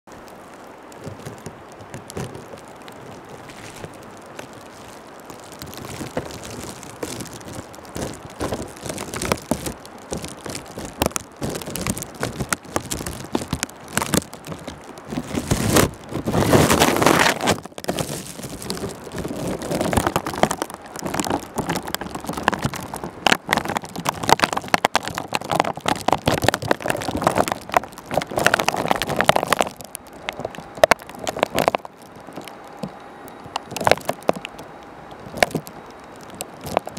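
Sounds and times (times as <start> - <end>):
crackling patter of precipitation: 0.0 - 36.9
gusting wind: 0.1 - 36.9.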